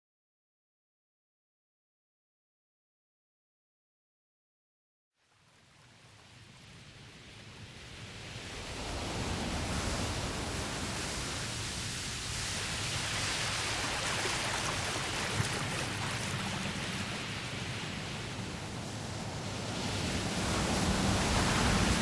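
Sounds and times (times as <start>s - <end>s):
ocean waves washing: 6.3s - 22.0s.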